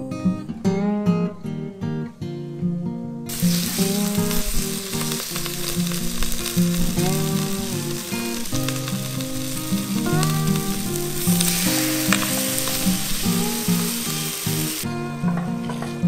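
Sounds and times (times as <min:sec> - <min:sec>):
light guitar music: 0:00.0 - 0:16.0
meat sizzling in oil: 0:03.3 - 0:14.8.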